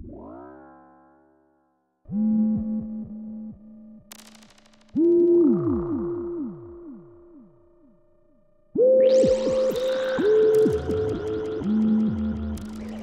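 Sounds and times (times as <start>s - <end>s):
brief crackle: 4.1s - 5.0s.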